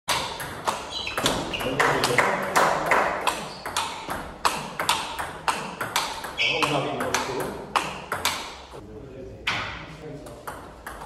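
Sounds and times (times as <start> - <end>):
table tennis ball ticking: 0.1 - 8.8.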